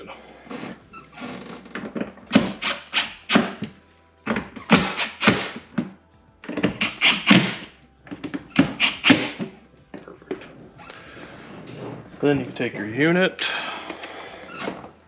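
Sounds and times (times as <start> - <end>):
power driver driving screws: 0.5 - 9.5.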